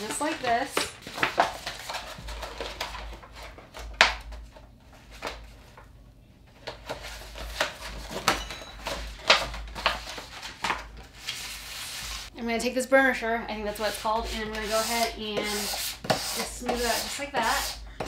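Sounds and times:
paper rustling: 0.0 - 5.9, 6.5 - 12.3.

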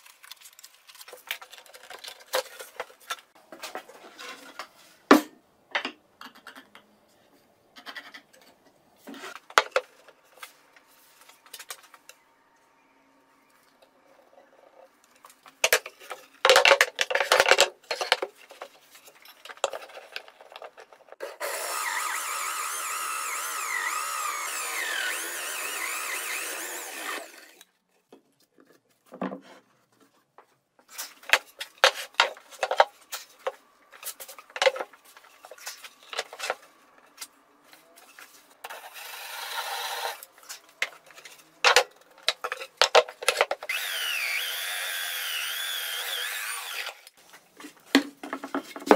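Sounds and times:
power drill boring into wood: 21.3 - 27.6, 38.7 - 40.2, 43.7 - 47.0
knocks and clatter on workbench: 29.1 - 29.6, 47.6 - 48.9.

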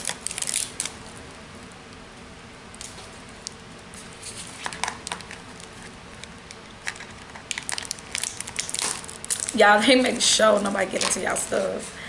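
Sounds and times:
plastic tub crackling: 4.3 - 11.7.

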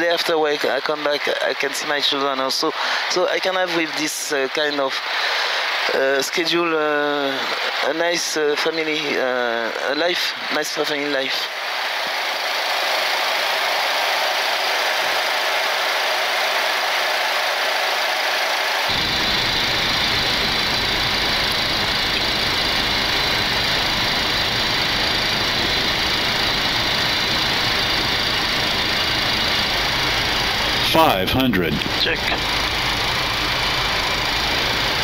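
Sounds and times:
aircraft cockpit rushing noise: 11.7 - 35.0.

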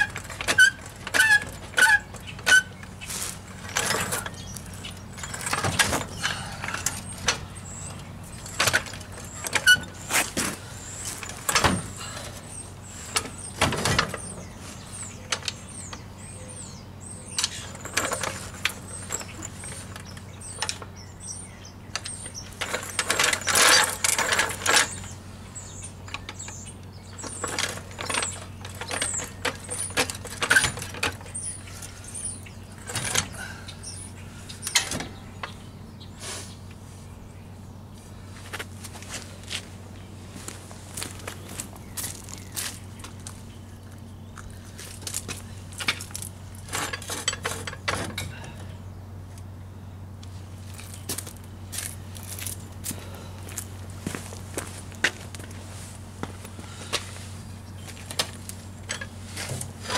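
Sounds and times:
metal clanks and knocks: 3.5 - 12.4, 32.8 - 33.5, 45.2 - 48.6.

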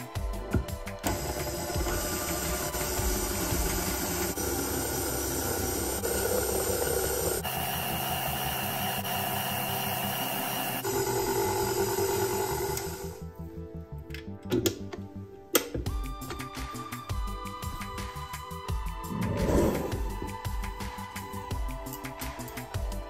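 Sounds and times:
stand mixer kneading dough: 1.0 - 13.2.

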